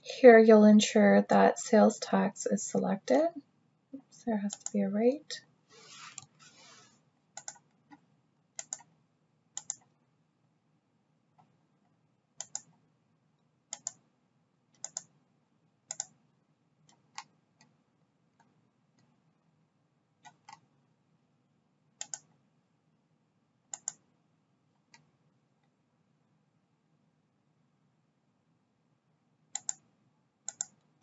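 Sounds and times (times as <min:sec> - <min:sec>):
computer mouse clicking: 0:04.5 - 0:04.8, 0:07.4 - 0:09.0, 0:09.6 - 0:10.0, 0:12.4 - 0:12.8, 0:13.7 - 0:14.0, 0:14.8 - 0:15.2, 0:15.9 - 0:16.2, 0:16.8 - 0:17.8, 0:18.4 - 0:19.1, 0:20.2 - 0:20.7, 0:22.0 - 0:22.4, 0:23.7 - 0:24.1, 0:24.8 - 0:25.7, 0:29.5 - 0:31.0.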